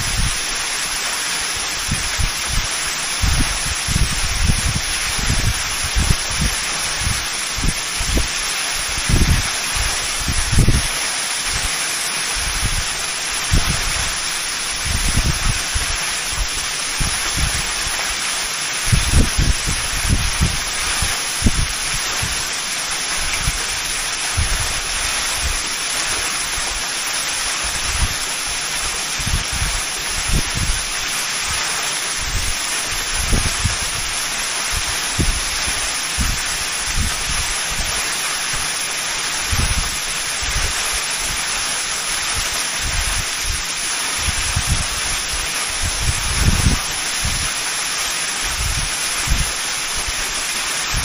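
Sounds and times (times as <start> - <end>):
waterfall rushing: 0.0 - 51.0
wind buffeting microphone: 1.8 - 11.7, 12.4 - 18.0, 18.8 - 22.5, 23.2 - 25.6, 27.6 - 28.2, 29.1 - 31.6, 32.2 - 38.0, 39.4 - 40.8, 42.4 - 47.5, 48.4 - 51.0.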